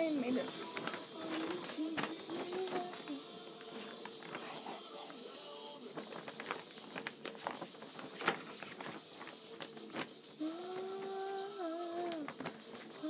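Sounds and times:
paper poster crackling and rustling: 0:00.0 - 0:13.0
person humming: 0:00.8 - 0:05.2, 0:10.4 - 0:12.4.

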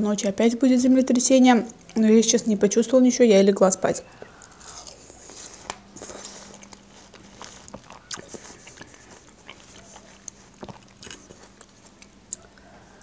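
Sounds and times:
crunchy salad chewing: 0:04.0 - 0:13.0.

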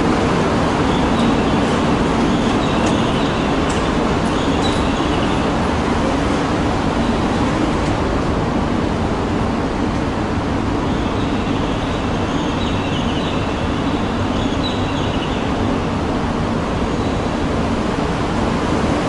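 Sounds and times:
steady rushing noise: 0:00.0 - 0:14.4, 0:15.4 - 0:19.0.

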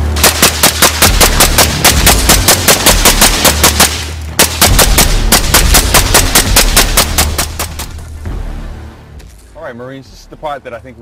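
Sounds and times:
suppressed rifle rapid shots: 0:00.2 - 0:08.0.

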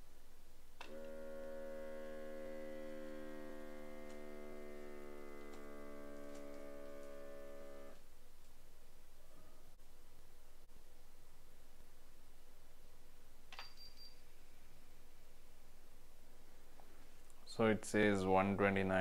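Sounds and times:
small air pump humming: 0:00.8 - 0:08.1.

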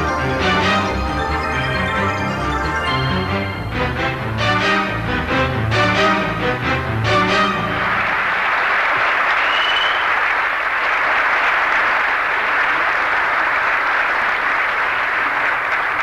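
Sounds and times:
audience applauding: 0:07.1 - 0:16.0
high whistle: 0:09.4 - 0:10.2.

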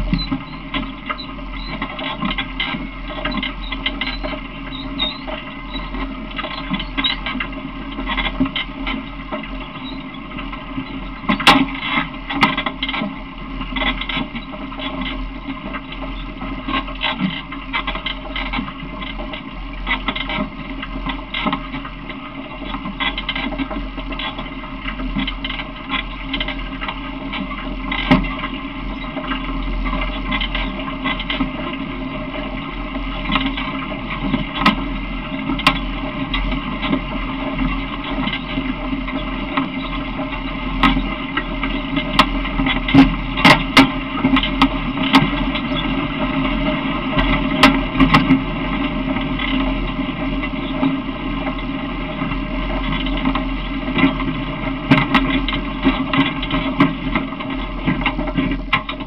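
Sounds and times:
ride-on vehicle rattling: 0:00.0 - 0:59.0
sharp clicks and knocks: 0:52.2 - 0:59.0.

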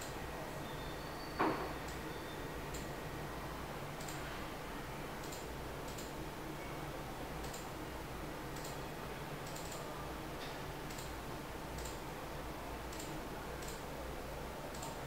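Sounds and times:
faint light ticks: 0:04.0 - 0:04.2, 0:07.4 - 0:07.7, 0:11.8 - 0:12.0, 0:14.7 - 0:15.0.

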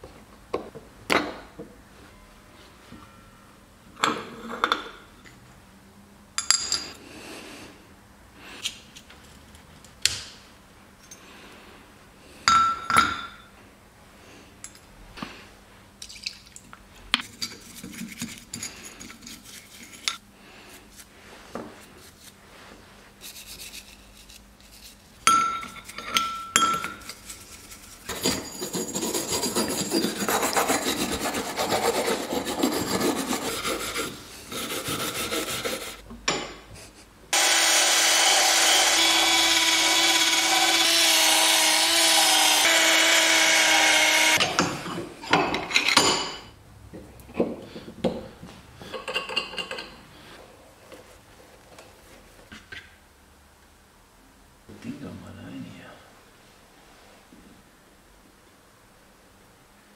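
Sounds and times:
hand brush scrubbing: 0:17.4 - 0:25.2, 0:27.0 - 0:36.0
cordless drill with wire brush: 0:37.4 - 0:44.4.

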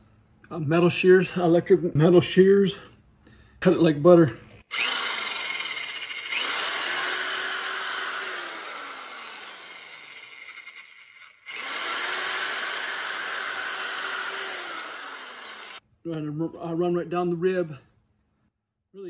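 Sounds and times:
electric shears cutting: 0:04.7 - 0:15.8.

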